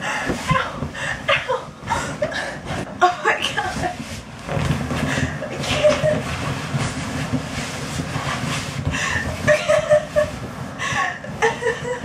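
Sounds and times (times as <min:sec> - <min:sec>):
air escaping from mattress: 0:03.9 - 0:11.6.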